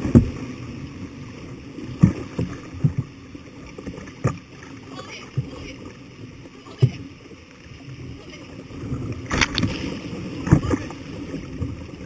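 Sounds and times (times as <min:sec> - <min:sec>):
river water rushing: 0:00.0 - 0:12.0
sharp water splashes: 0:08.0 - 0:11.8.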